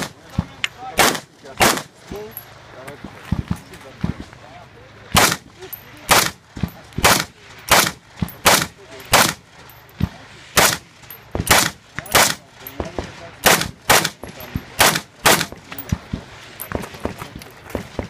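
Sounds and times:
rifle shots: 0:01.0 - 0:02.0, 0:05.1 - 0:05.5, 0:06.1 - 0:09.4, 0:10.6 - 0:12.4, 0:13.0 - 0:16.2.

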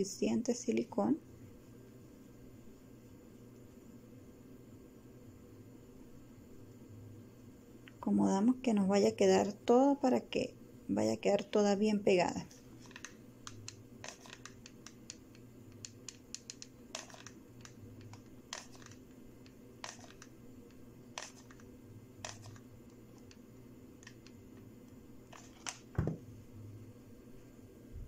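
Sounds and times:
glue gun clicks and taps: 0:13.0 - 0:20.3.

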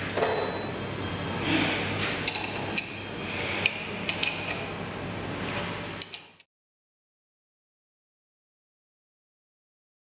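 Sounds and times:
spanner clinking on metal: 0:00.1 - 0:00.8.

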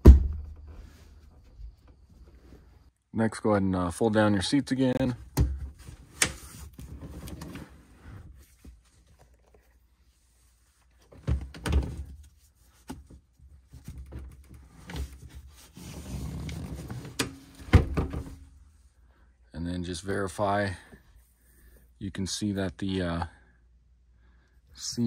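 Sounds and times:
rustling and handling noise: 0:05.1 - 0:19.0
thumps and knock: 0:17.6 - 0:18.4.

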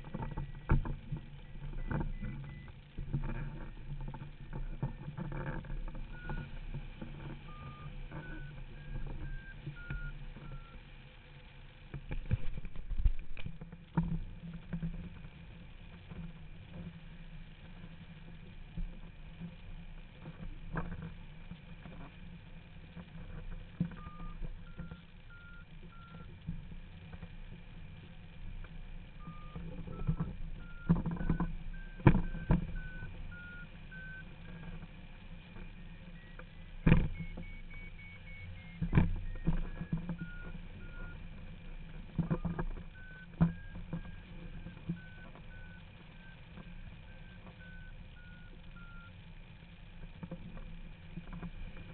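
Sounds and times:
variometer beeping: 0:00.0 - 0:11.0, 0:23.9 - 0:26.4, 0:29.0 - 0:49.8.

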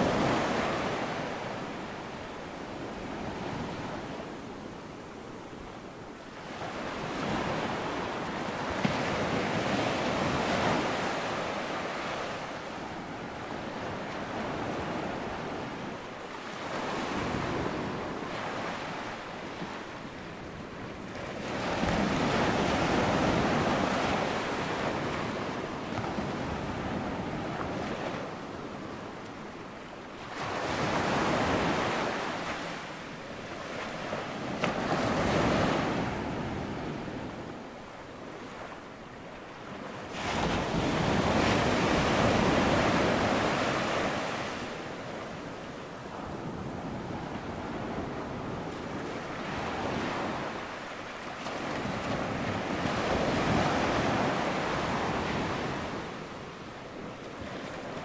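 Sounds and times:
ocean waves breaking: 0:30.2 - 0:58.0.

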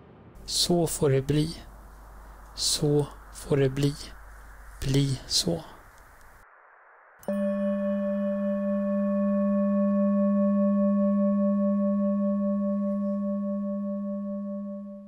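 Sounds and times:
singing bowl ringing: 0:07.2 - 0:15.0.

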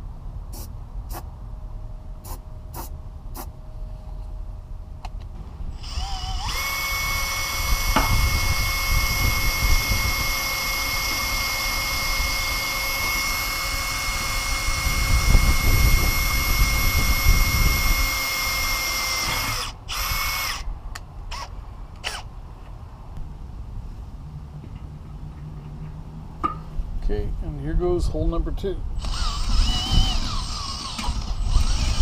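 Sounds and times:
cordless drill whining: 0:05.8 - 0:20.7, 0:21.3 - 0:22.3, 0:29.0 - 0:32.0.

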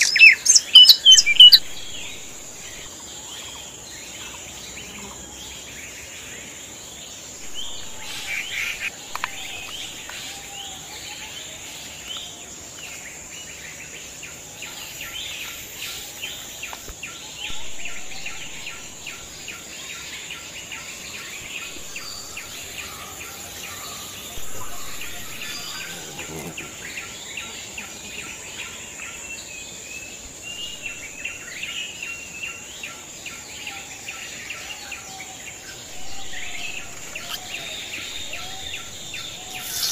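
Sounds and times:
bird chirps: 0:00.0 - 0:03.6, 0:07.4 - 0:10.2, 0:15.0 - 0:20.0, 0:20.6 - 0:27.4, 0:35.6 - 0:39.9
insects droning: 0:00.0 - 0:39.9.

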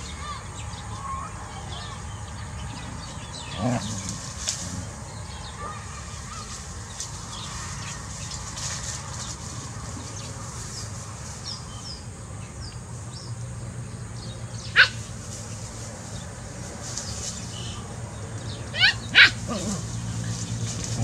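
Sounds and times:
dog yelp: 0:18.7 - 0:19.8.

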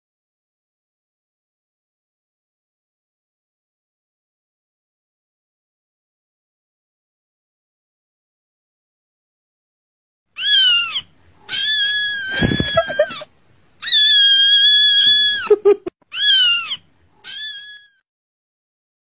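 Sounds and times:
kitten meowing: 0:10.4 - 0:13.2, 0:13.8 - 0:18.0.

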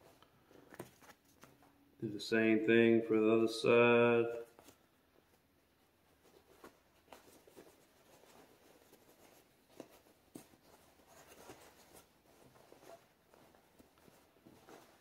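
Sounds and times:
fabric rustling: 0:04.6 - 0:15.0.

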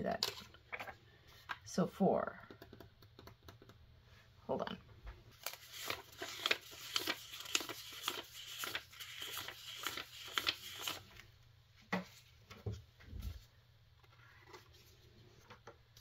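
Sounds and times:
paper bills rustling: 0:05.4 - 0:11.2.

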